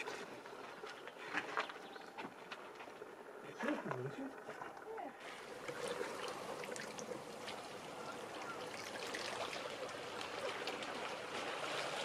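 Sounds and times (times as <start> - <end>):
small waves lapping on rocks: 3.5 - 12.0.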